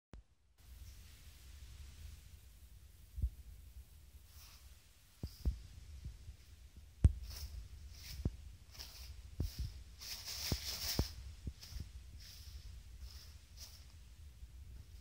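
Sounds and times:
soft low thumps: 3.1s - 3.9s, 5.2s - 15.0s
toilet paper rustling: 7.2s - 14.0s.

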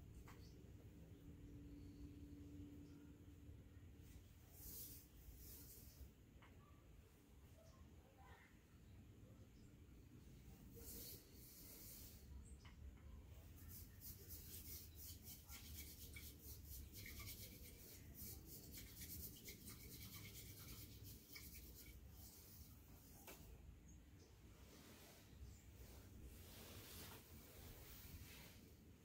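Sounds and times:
tea whisk swishing in water: 13.6s - 22.8s.

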